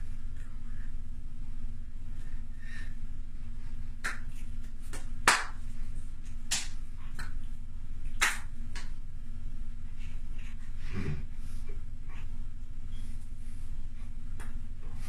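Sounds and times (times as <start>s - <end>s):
steady low hum: 0.0s - 15.0s
hands clapping: 4.0s - 9.0s.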